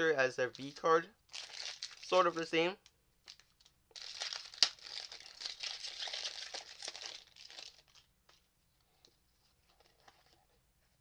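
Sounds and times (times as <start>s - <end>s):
foil wrapper crinkling: 0.5s - 2.6s, 3.3s - 8.1s.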